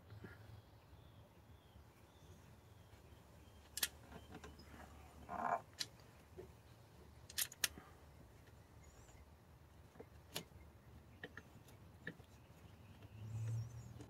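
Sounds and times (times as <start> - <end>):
small screw clicking: 7.3 - 7.8.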